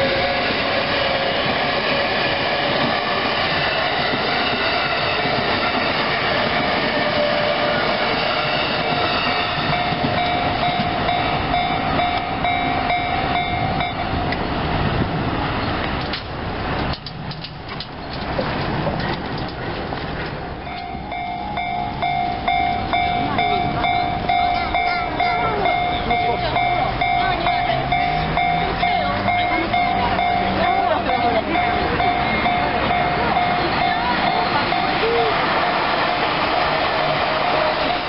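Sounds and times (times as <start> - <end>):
held tones from train: 0.0 - 38.0
train wheels rumbling on rails: 0.0 - 38.0
scattered clicks: 16.0 - 19.6.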